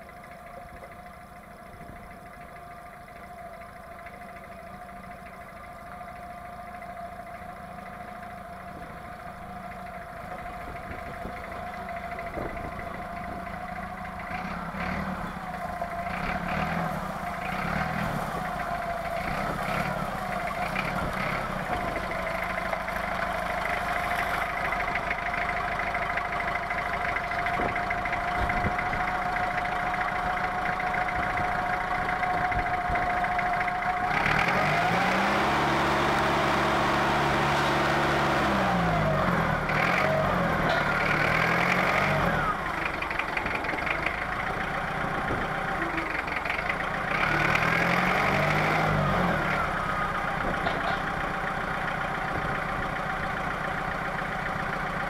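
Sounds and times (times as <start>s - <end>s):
diesel engine idling and revving: 0.0s - 55.0s.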